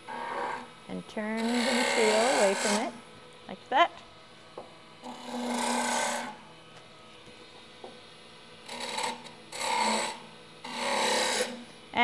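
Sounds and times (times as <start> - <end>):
faint steady hum: 0.0 - 12.0
gouge cutting wood on lathe: 0.1 - 0.6, 1.4 - 2.9, 5.1 - 6.3, 8.7 - 11.6.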